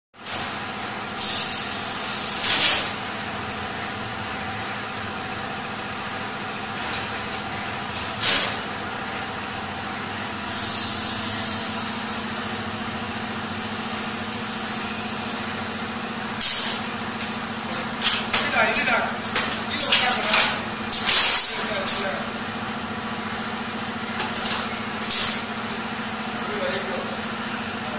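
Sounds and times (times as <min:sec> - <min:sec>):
compressed air hissing: 0:01.1 - 0:03.0, 0:10.4 - 0:12.5.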